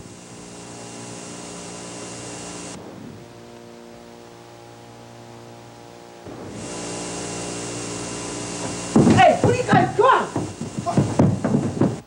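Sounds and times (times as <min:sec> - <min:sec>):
sustained musical drone chord: 0:00.0 - 0:09.0
hiss: 0:06.4 - 0:12.0.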